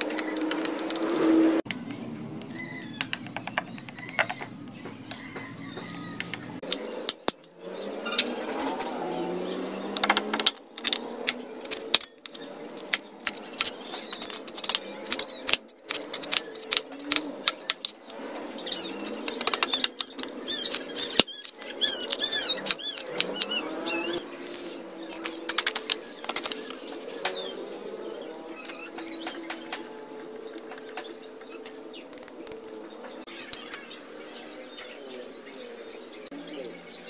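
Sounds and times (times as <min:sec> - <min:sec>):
high chirping: 0:11.1 - 0:37.0.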